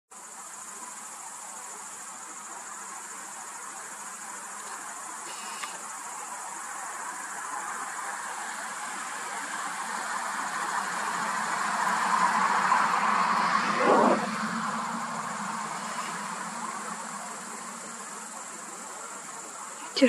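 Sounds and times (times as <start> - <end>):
high-pitched insect trilling: 0.2 - 20.0
road traffic rushing: 7.0 - 20.0
vehicle approaching: 8.4 - 19.4.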